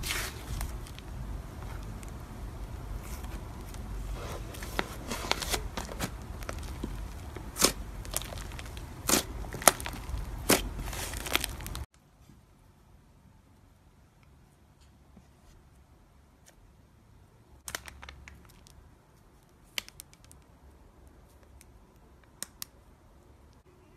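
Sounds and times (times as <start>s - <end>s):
hands squishing slime: 4.5s - 11.9s.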